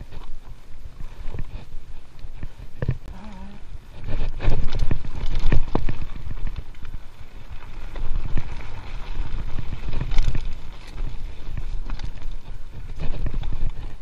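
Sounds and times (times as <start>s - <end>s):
bike tyres on dirt: 0.0s - 14.0s
wind on microphone: 0.0s - 14.0s
bike rattling and knocking: 3.8s - 14.0s.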